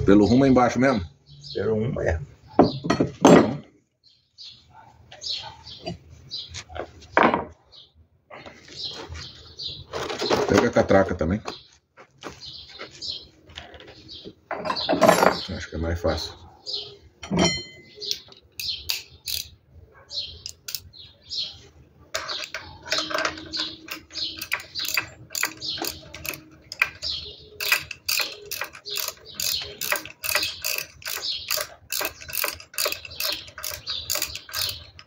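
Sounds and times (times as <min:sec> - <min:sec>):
socket ratchet wrench clicking: 0:18.3 - 0:19.5, 0:20.4 - 0:20.9, 0:22.2 - 0:35.0.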